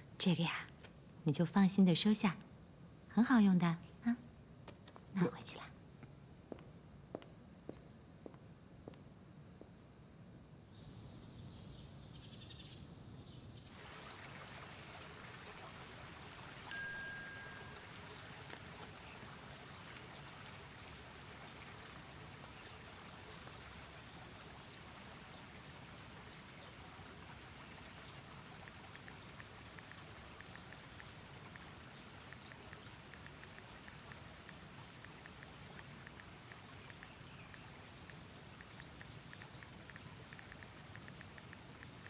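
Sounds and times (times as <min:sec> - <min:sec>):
small waterfall trickling: 0:13.6 - 0:42.0
water drips: 0:13.7 - 0:42.0
faint light ticks: 0:27.9 - 0:42.0.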